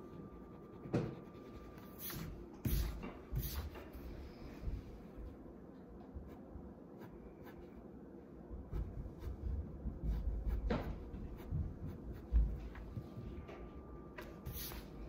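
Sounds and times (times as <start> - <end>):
pencil scratching on paper: 0.0 - 3.7.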